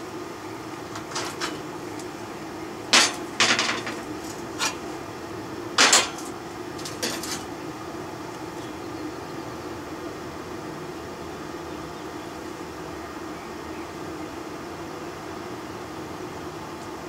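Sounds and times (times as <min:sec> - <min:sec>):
metal clanks on steel table: 0:03.0 - 0:04.8, 0:05.8 - 0:07.5.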